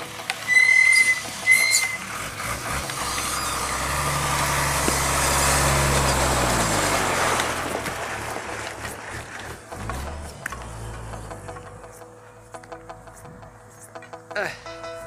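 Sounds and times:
diesel truck engine passing: 0:00.0 - 0:12.0.

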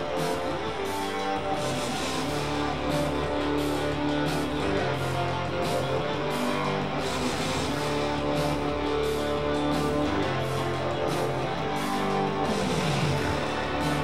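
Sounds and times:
strummed guitar music: 0:00.0 - 0:14.0.

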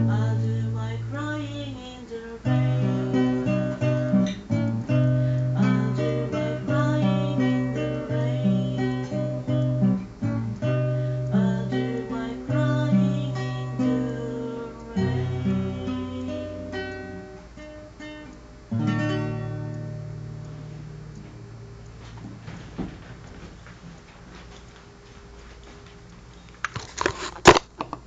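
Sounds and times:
acoustic guitar playing: 0:00.0 - 0:23.3
man singing: 0:05.5 - 0:09.4, 0:11.3 - 0:16.7.

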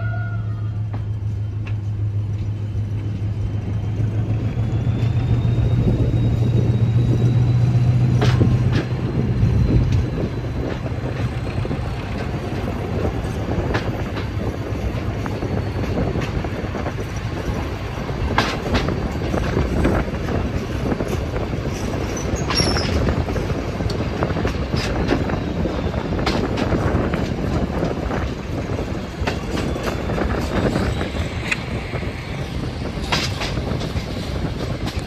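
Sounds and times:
train rumbling: 0:00.0 - 0:35.0
wheels clicking over rail joints: 0:00.8 - 0:35.0
high squeal: 0:02.6 - 0:12.2, 0:21.9 - 0:23.5.

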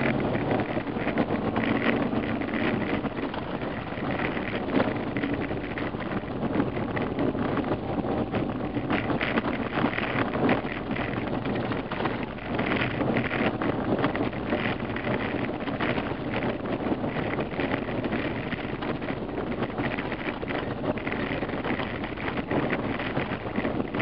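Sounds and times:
engine and tyre rumble: 0:00.0 - 0:24.0
gravel crackling under tyres: 0:00.0 - 0:24.0
wind noise: 0:00.0 - 0:24.0.

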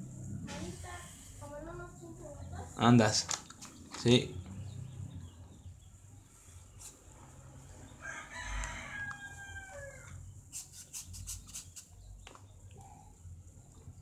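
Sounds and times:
marker scratching on paper: 0:06.7 - 0:07.2, 0:10.5 - 0:12.0
rooster crowing: 0:07.8 - 0:10.3.

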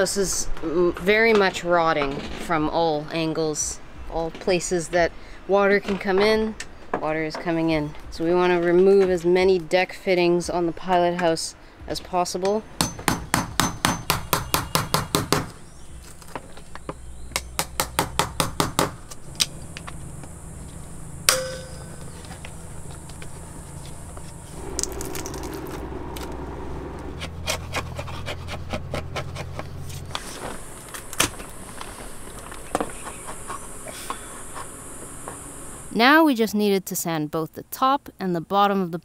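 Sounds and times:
hammer striking chisel: 0:12.8 - 0:15.6, 0:17.3 - 0:19.0, 0:21.3 - 0:22.1
steady low hum: 0:15.6 - 0:36.0
ringing metal clang: 0:21.3 - 0:22.2.

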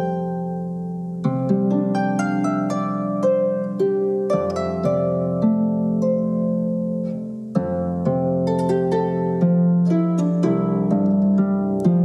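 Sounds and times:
solo harp playing: 0:00.0 - 0:12.0.

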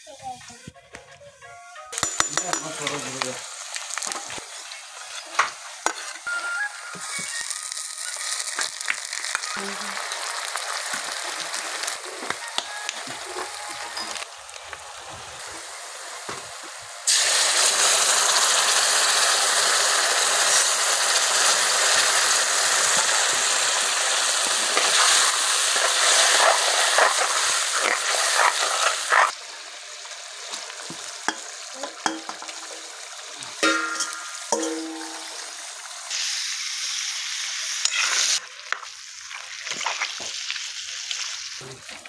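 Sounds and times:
onions sizzling in hot oil: 0:02.0 - 0:42.0
metal spatula scraping a pan: 0:37.8 - 0:38.4.

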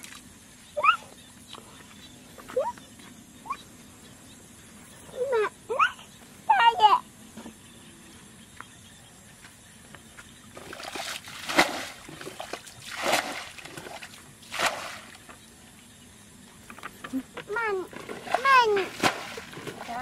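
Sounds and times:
water splashing from bucket: 0:10.6 - 0:15.3, 0:17.9 - 0:20.0
water sloshing: 0:10.6 - 0:15.4, 0:17.9 - 0:20.0.

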